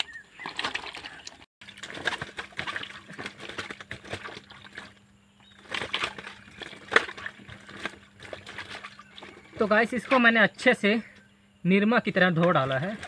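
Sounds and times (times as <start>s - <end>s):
water sloshing in a steel bowl: 0.0s - 11.3s, 12.0s - 13.0s
sharp water splash: 5.6s - 9.4s.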